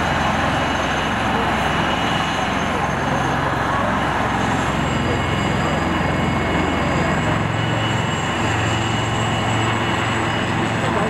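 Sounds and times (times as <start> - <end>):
helicopter engine whine: 0.0 - 11.0
rotor blades pulsing: 0.0 - 11.0.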